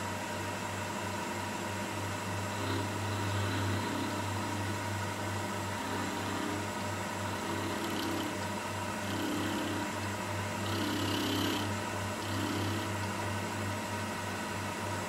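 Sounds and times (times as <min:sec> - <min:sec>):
milling machine cutting metal: 0:02.2 - 0:13.8.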